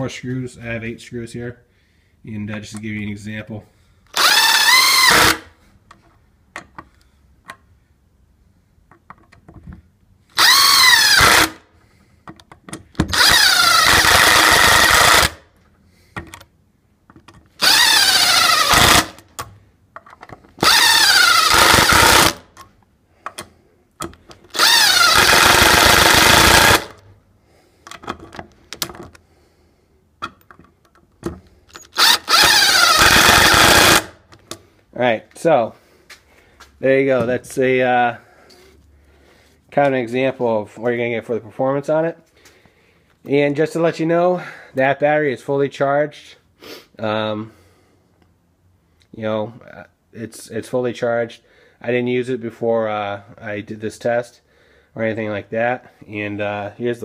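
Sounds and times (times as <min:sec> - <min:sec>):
impact driver driving screws: 0:04.1 - 0:05.5, 0:10.4 - 0:11.6, 0:12.9 - 0:15.4, 0:17.5 - 0:19.5, 0:20.6 - 0:22.6, 0:23.3 - 0:27.0, 0:31.2 - 0:34.2.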